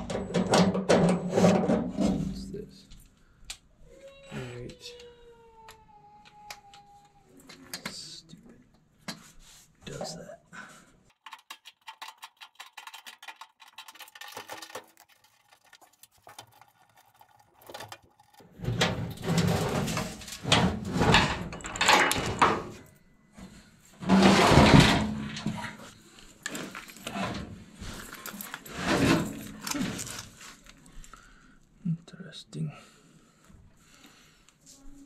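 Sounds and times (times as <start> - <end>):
sheet metal scraping and rattling: 0.0 - 2.5, 16.5 - 22.8, 24.0 - 30.4.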